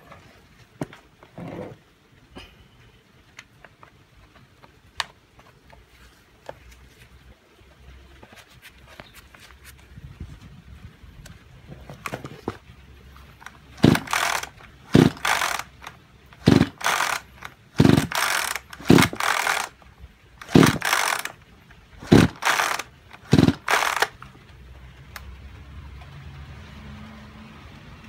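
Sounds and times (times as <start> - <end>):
chainsaw recoil starter pulls: 13.4 - 19.8, 20.4 - 21.4, 22.0 - 24.2
engine cranking: 13.4 - 19.8, 20.4 - 21.4, 22.0 - 24.3.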